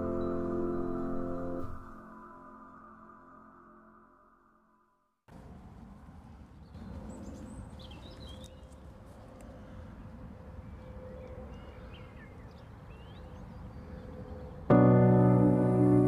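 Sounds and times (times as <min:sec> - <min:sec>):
small birds chirping: 0:06.6 - 0:08.8.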